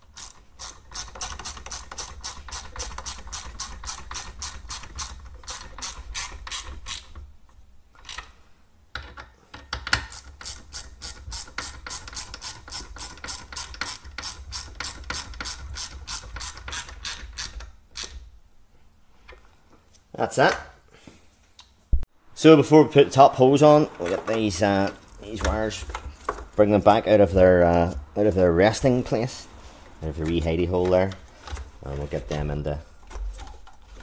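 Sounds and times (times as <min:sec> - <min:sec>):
hand ratchet clicking: 0:00.0 - 0:07.2, 0:09.0 - 0:18.2.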